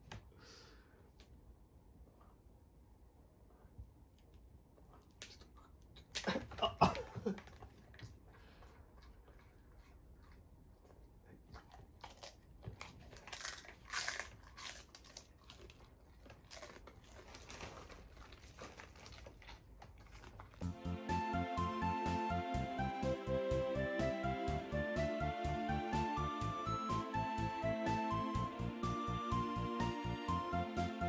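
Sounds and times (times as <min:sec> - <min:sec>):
dog crunching a hard chew: 0:04.9 - 0:20.7.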